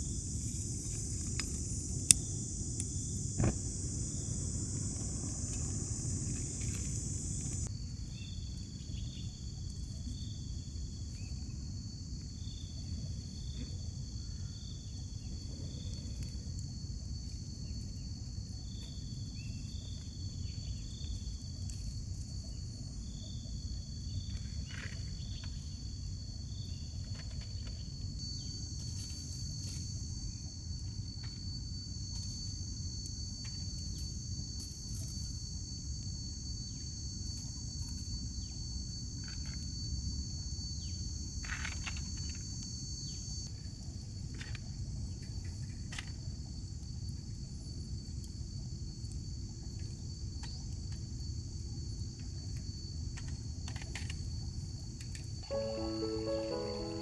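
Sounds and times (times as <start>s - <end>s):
low outdoor rumble: 0.0s - 7.7s
insects trilling: 0.0s - 57.0s
short high chirps: 55.5s - 57.0s.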